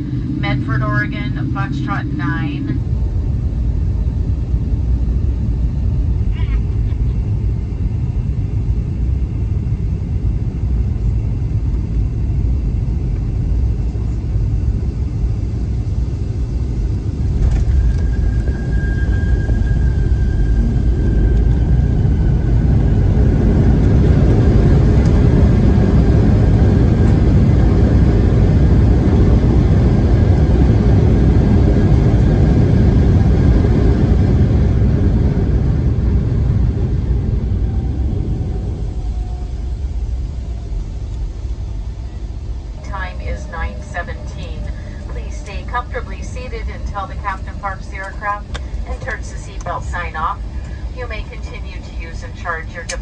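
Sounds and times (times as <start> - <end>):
airplane cabin rumble: 0.0 - 53.0
jet braking rush: 17.0 - 23.3.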